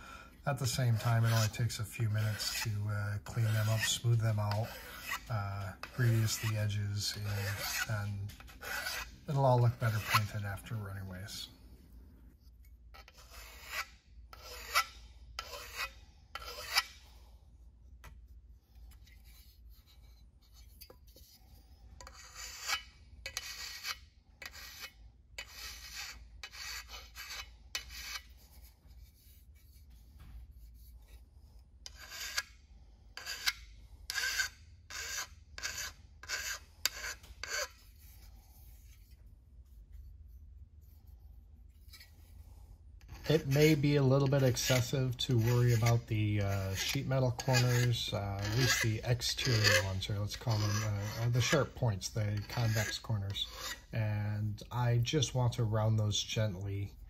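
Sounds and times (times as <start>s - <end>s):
hand file rasping on metal: 0.7s - 10.7s, 13.0s - 17.0s, 19.0s - 29.8s, 31.8s - 39.1s, 43.0s - 54.0s.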